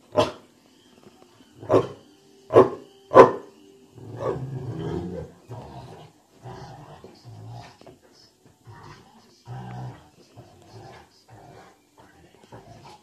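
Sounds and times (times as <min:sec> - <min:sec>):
dog barking: 0:00.1 - 0:00.4, 0:01.7 - 0:03.5
dog growling low: 0:04.0 - 0:07.8.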